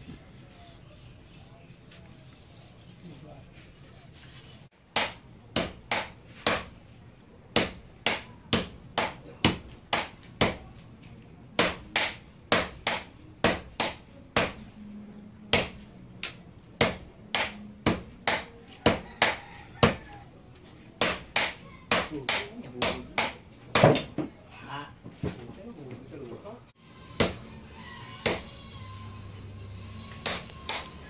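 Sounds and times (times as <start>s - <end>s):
hammers striking metal on anvil: 11.6s - 14.6s.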